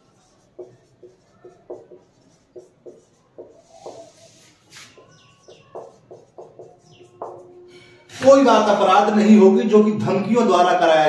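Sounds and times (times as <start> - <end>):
marker squeaking on whiteboard: 0.0 - 7.8.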